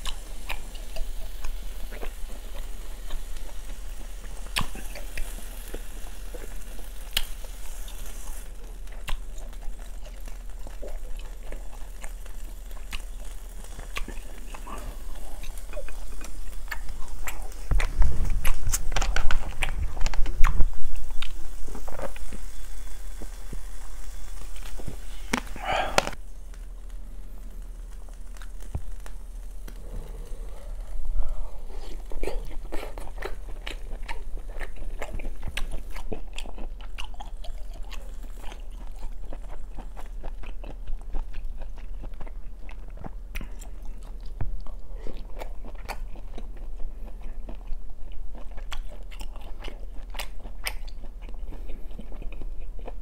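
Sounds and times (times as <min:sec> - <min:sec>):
chewing with wet mouth sounds: 0:00.0 - 0:26.2, 0:27.9 - 0:53.0
low hum: 0:00.0 - 0:35.9
meat sizzling on grill pan: 0:00.0 - 0:36.0, 0:36.8 - 0:40.3.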